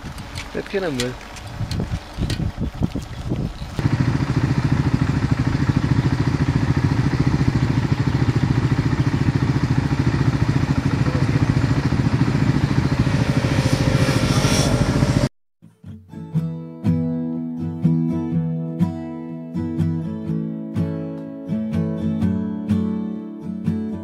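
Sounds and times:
motorcycle engine approaching: 0:00.0 - 0:15.3.

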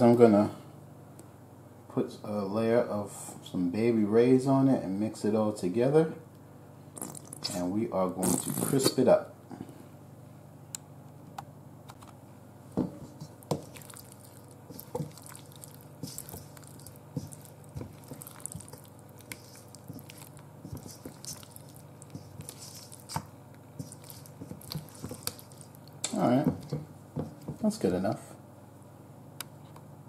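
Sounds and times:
wet squishing and scraping: 0:13.0 - 0:27.7.

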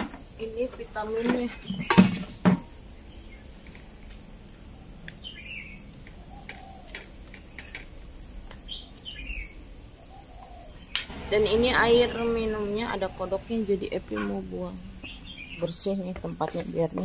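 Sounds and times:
high-pitched insect drone: 0:00.0 - 0:07.8, 0:08.7 - 0:17.0
bird chirping: 0:05.1 - 0:07.8, 0:08.6 - 0:16.7.

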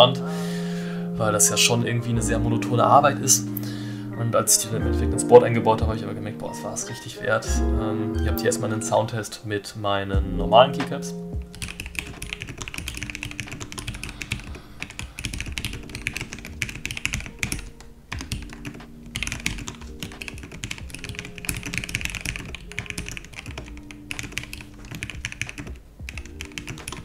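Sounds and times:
fast mechanical keyboard typing: 0:11.5 - 0:27.0.

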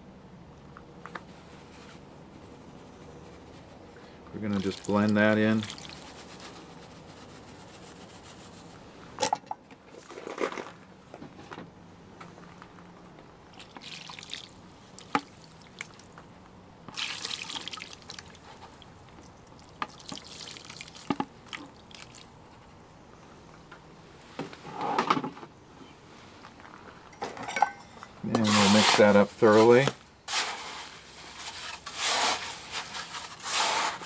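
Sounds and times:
water trickling and dripping: 0:13.6 - 0:16.1, 0:16.9 - 0:22.3.

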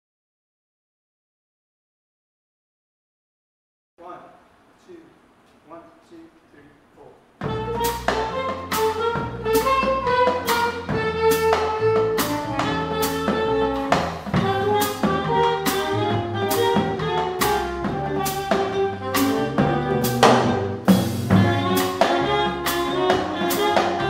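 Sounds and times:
drum kit with cymbal beat: 0:07.4 - 0:24.0
electric keyboard: 0:07.4 - 0:24.0
walking upright bass: 0:07.4 - 0:24.0
woodwind melody: 0:07.4 - 0:24.0.

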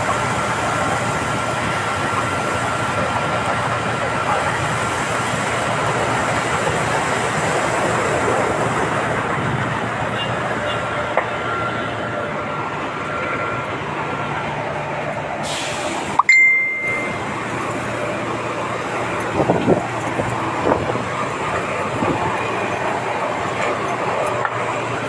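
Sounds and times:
short ringing tone: 0:16.2 - 0:17.3.

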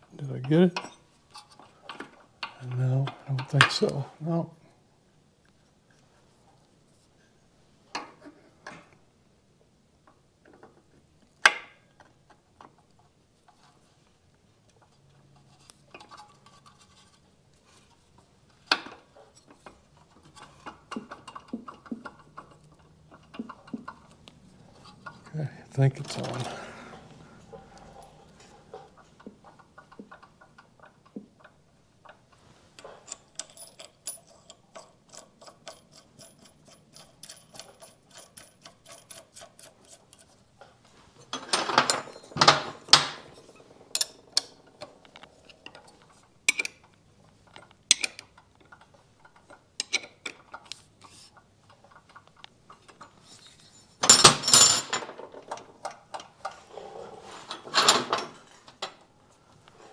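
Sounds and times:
wrench clanking and scraping: 0:00.2 - 0:04.0, 0:14.8 - 0:17.3, 0:18.7 - 0:59.0.

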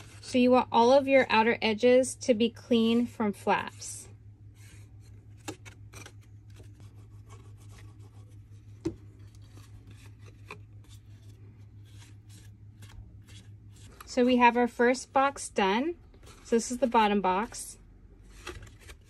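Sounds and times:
low hum: 0:00.0 - 0:19.0
cardstock rustling and tapping: 0:05.0 - 0:14.1.

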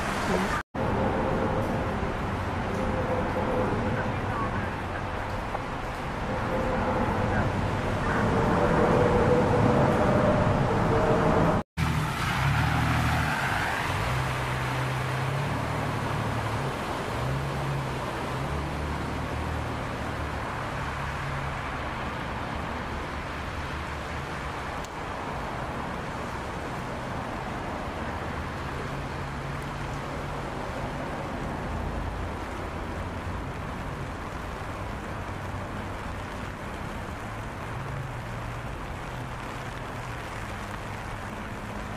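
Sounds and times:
water spray and rain hiss: 0:00.0 - 0:00.6, 0:11.8 - 0:41.9.

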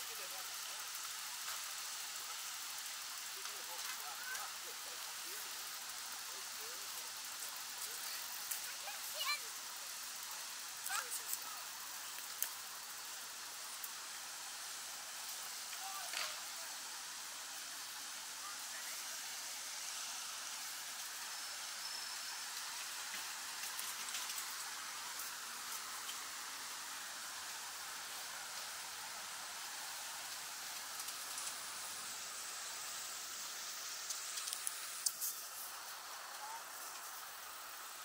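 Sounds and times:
splashing water hiss: 0:00.0 - 0:38.0
faint ticks: 0:12.1 - 0:12.6, 0:34.0 - 0:35.5.

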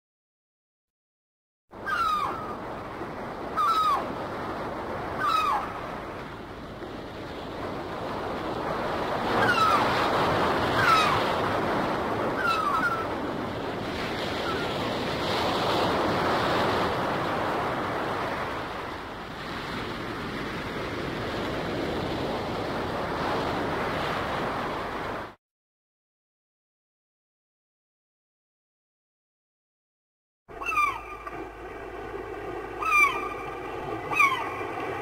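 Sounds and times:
gull calling: 0:01.8 - 0:02.7, 0:03.5 - 0:04.2, 0:05.1 - 0:05.8, 0:09.3 - 0:11.4, 0:12.3 - 0:13.2, 0:14.4 - 0:14.8, 0:30.5 - 0:31.5, 0:32.7 - 0:35.0
surf washing on shore: 0:01.8 - 0:25.4, 0:30.5 - 0:35.0.

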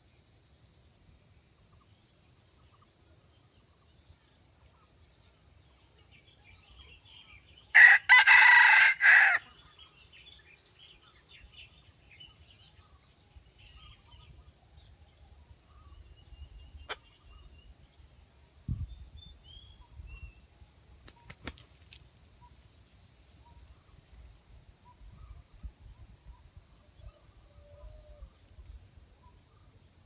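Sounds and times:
rooster crowing: 0:07.7 - 0:09.5
small birds chirping: 0:09.5 - 0:30.0.

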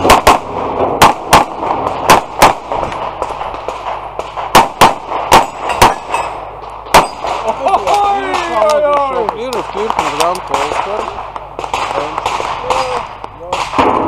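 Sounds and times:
handgun shots: 0:04.3 - 0:06.3
steel targets clanging: 0:05.3 - 0:08.6.

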